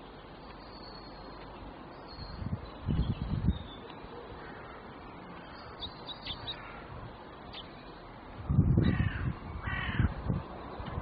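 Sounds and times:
crow cawing: 4.4 - 4.9, 6.5 - 6.9, 8.9 - 10.1.

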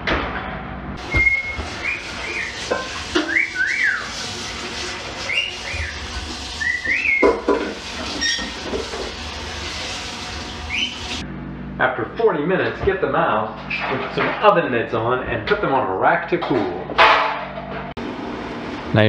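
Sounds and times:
person whistling a tune: 1.1 - 2.6, 3.2 - 4.1, 6.6 - 7.3.

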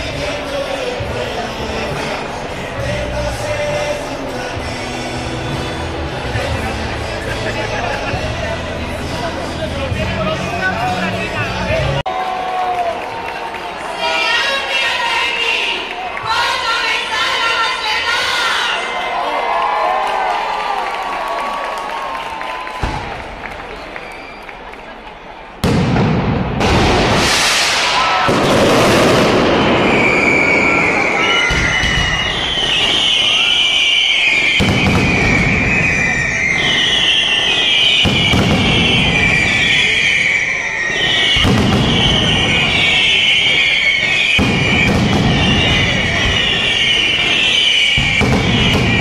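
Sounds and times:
high whistling fireworks: 22.7 - 49.0
firecracker barrage rattling: 25.6 - 49.0.

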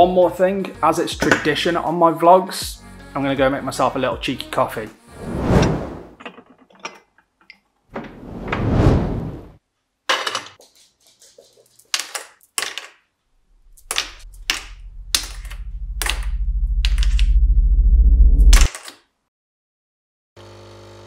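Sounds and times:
coffee machine pump buzzing: 20.4 - 21.0.

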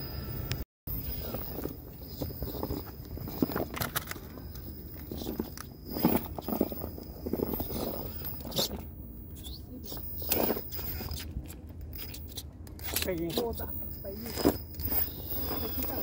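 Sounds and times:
electric motor whine: 13.6 - 16.0.

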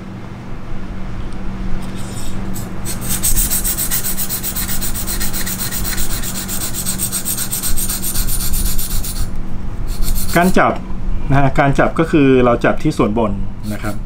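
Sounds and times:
sharpening stone rasping on knife edge: 1.8 - 9.3, 9.9 - 10.6.

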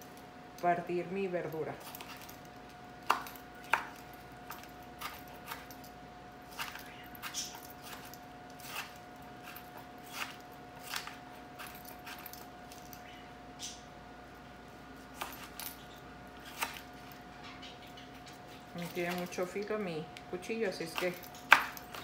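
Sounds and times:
faint steady hum: 0.0 - 22.0
knife chopping on plastic board: 3.0 - 4.0.

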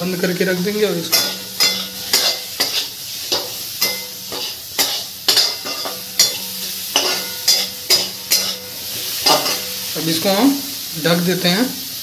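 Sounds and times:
oil sizzling: 0.0 - 12.0
metal spatula scraping a pan: 1.0 - 10.0.

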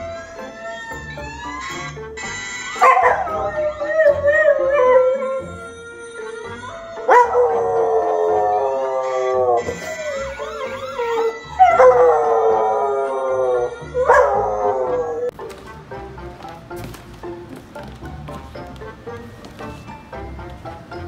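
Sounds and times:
dog howling: 2.7 - 15.4.

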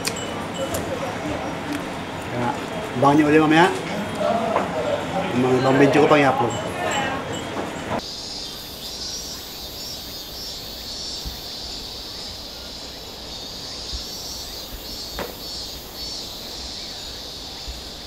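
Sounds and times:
cicadas buzzing: 0.0 - 18.0
pulsing insect chirr: 7.3 - 18.0.

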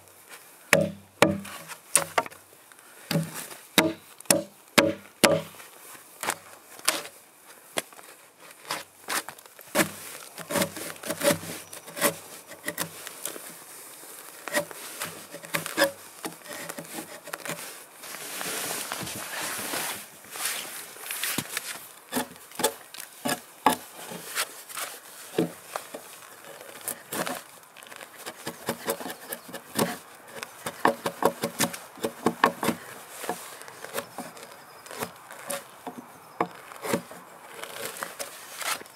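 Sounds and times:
axe chops on wood: 0.7 - 2.3, 3.1 - 5.5
wood scraping: 0.7 - 2.4, 3.1 - 7.1, 8.4 - 38.9.

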